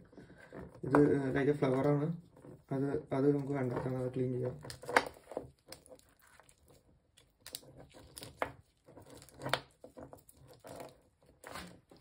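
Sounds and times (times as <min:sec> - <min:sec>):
crab shell crackling and tearing: 0:04.5 - 0:12.0.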